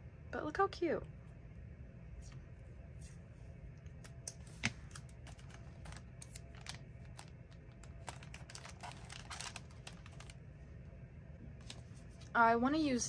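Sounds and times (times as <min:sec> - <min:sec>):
paper and tape rustling: 0:04.4 - 0:10.4, 0:11.6 - 0:12.4.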